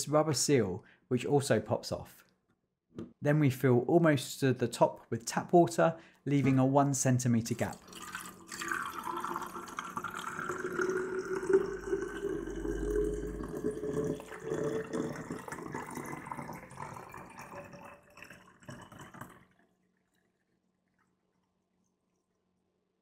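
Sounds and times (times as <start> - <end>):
water pouring into a tank: 7.3 - 22.8.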